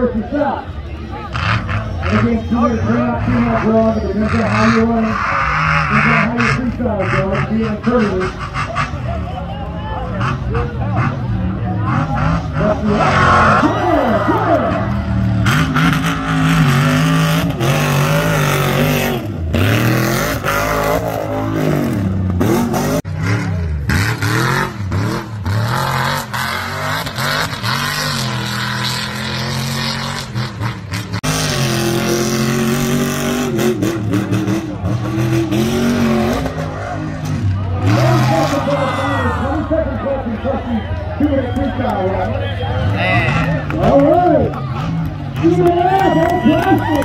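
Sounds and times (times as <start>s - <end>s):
truck engine revving hard: 0.0s - 47.0s.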